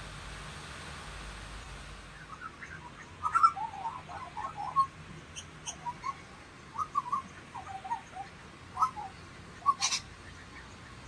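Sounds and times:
faint steady hiss: 0:00.0 - 0:11.0
lorikeets chattering: 0:02.2 - 0:11.0.

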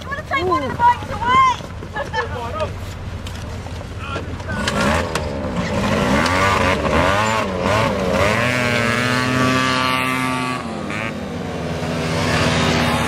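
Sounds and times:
scooter engines revving: 0:03.5 - 0:13.0.

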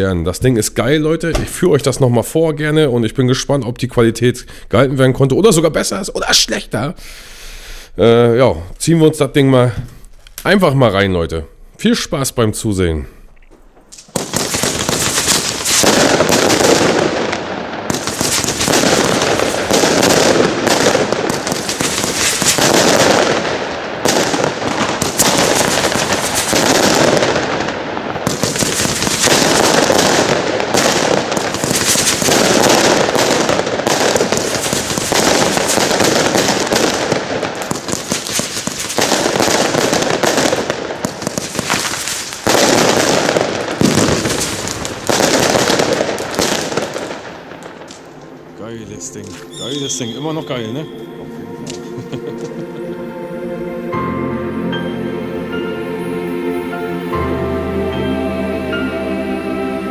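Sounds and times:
firework battery firing: 0:13.9 - 0:48.4.

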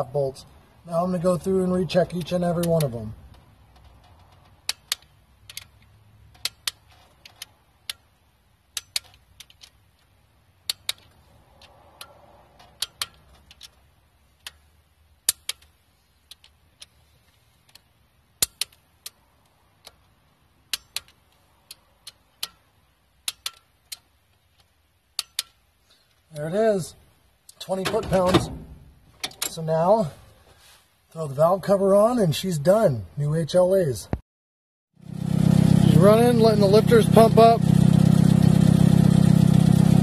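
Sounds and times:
torque wrench clicks: 0:02.2 - 0:16.9, 0:17.6 - 0:26.3.

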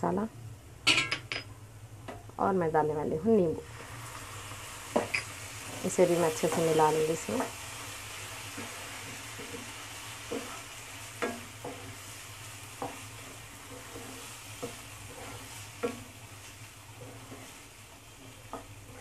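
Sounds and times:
chicken sizzling in a frying pan: 0:03.2 - 0:19.0
wooden spatula scraping pan: 0:08.5 - 0:19.0
spatula knocking against pan: 0:11.2 - 0:11.8.

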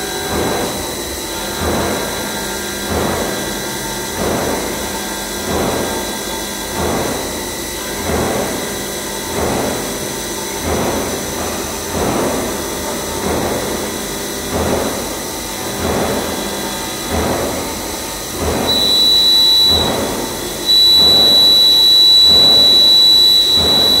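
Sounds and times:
milling machine spindle whine: 0:13.0 - 0:24.0
end mill cutting steel: 0:17.8 - 0:24.0
loud high whine: 0:18.7 - 0:24.0.

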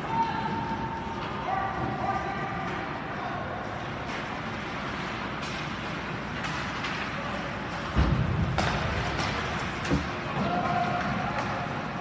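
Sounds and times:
skates on ice: 0:03.8 - 0:12.0.

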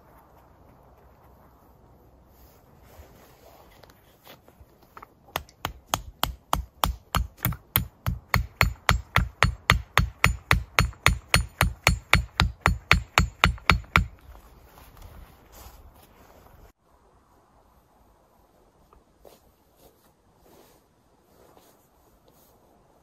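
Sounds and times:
hatchet hammering wooden stake: 0:05.0 - 0:14.3.

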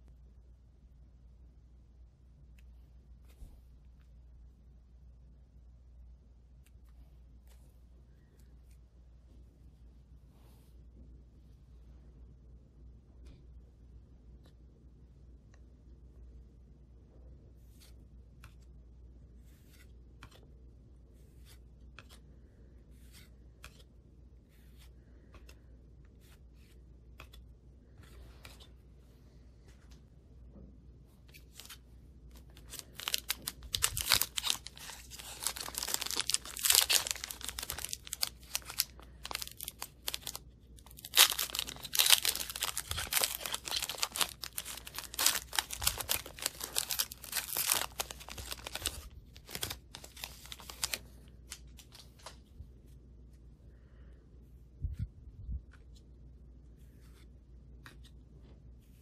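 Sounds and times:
foil card pack tearing and crinkling: 0:32.6 - 0:51.0.

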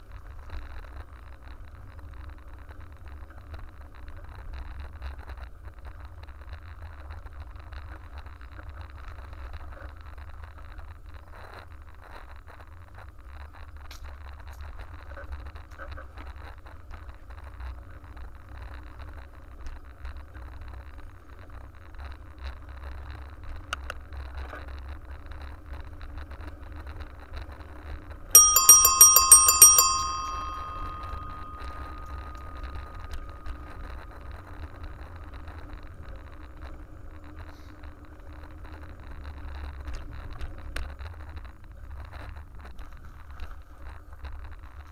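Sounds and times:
bicycle bell trill: 0:28.4 - 0:32.4.

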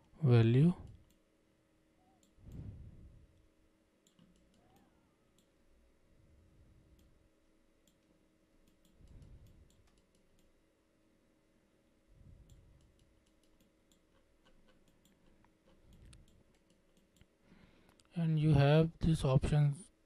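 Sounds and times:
computer mouse clicks: 0:04.0 - 0:05.5, 0:07.8 - 0:10.6, 0:12.4 - 0:17.3.

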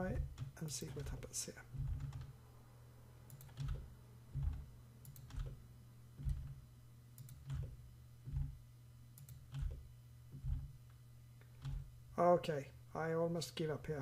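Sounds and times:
steady low hum: 0:00.0 - 0:14.0
keyboard and mouse clicks: 0:03.3 - 0:03.8, 0:04.4 - 0:05.6, 0:06.2 - 0:06.6, 0:07.2 - 0:07.7, 0:09.2 - 0:09.8.

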